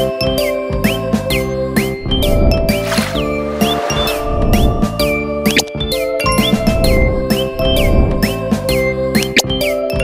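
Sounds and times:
background music with sliding tones: 0:00.9 - 0:10.0.

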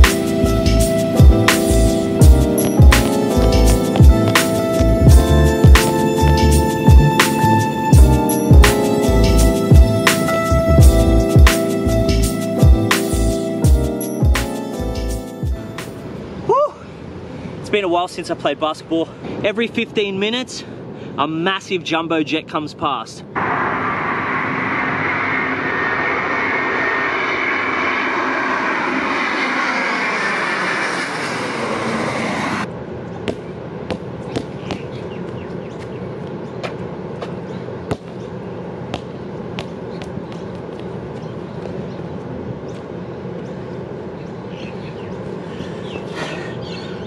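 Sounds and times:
jet airliner passing overhead: 0:00.0 - 0:16.4, 0:23.2 - 0:33.8
basketball bouncing on court: 0:37.9 - 0:38.2.

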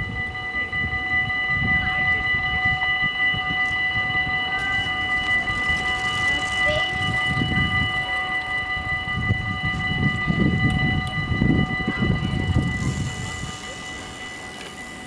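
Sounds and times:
level crossing warning bells: 0:00.0 - 0:15.0.

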